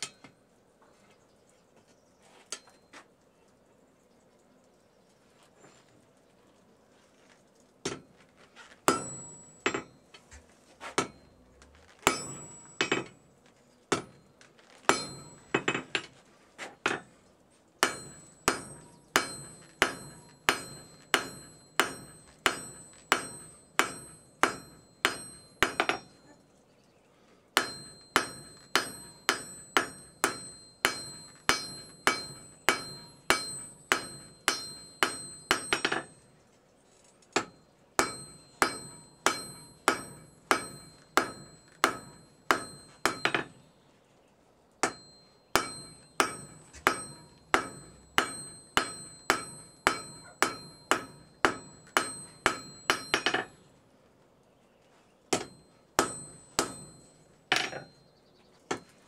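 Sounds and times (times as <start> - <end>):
hammer striking steel on anvil: 0.0 - 0.4, 8.9 - 11.4, 12.0 - 13.3, 13.9 - 16.2, 17.8 - 26.4, 27.6 - 36.3, 37.3 - 43.7, 44.8 - 53.7, 55.3 - 58.1, 58.7 - 59.0.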